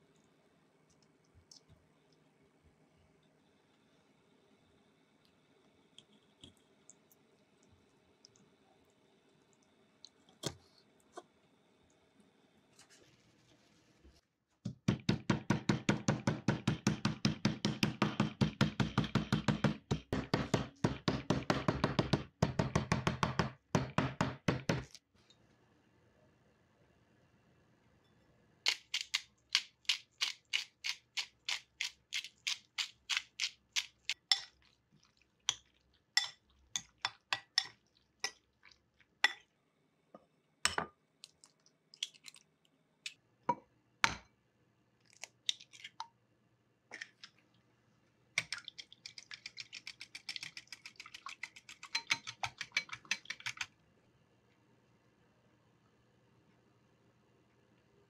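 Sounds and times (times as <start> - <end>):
eggs beaten in glass bowl: 14.9 - 25.0, 48.4 - 53.7.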